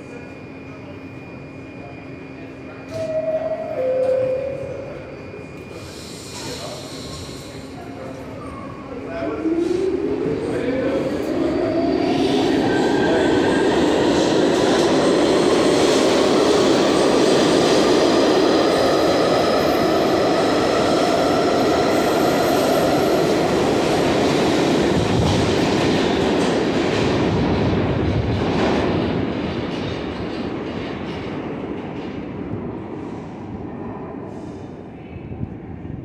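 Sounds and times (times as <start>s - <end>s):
subway train motor whine: 0.0s - 28.3s
train wheels on rails: 10.9s - 33.7s.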